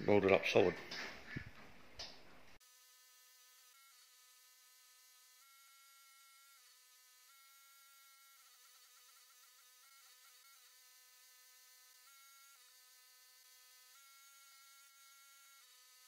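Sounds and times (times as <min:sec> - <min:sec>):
faint high buzzing tone: 0:03.4 - 0:16.0.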